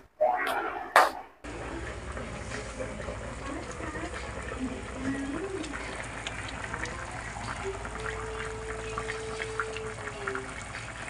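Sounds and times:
steady held tone: 0.0s - 1.4s
broth bubbling and crackling: 1.4s - 11.0s.

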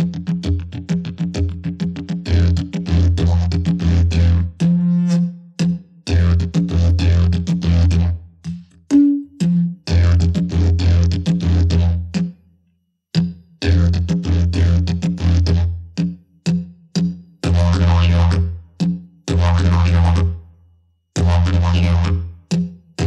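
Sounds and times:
didgeridoo drone: 2.1s - 8.3s, 9.4s - 12.2s, 13.6s - 15.8s, 17.4s - 18.6s, 19.3s - 20.4s, 21.2s - 22.5s.

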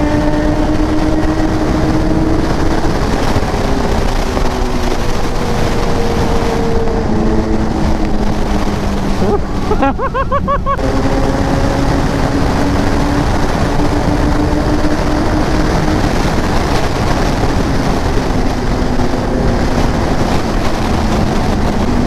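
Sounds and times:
motorcycle engine drone: 0.0s - 22.0s
wind rush: 0.0s - 22.0s.

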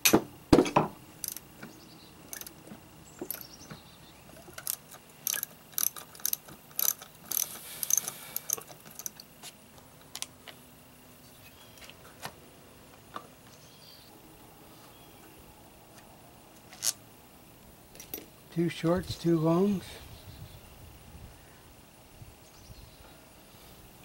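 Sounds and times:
socket ratchet clicking: 1.2s - 1.4s, 2.3s - 2.6s, 3.2s - 3.5s, 4.3s - 9.3s.

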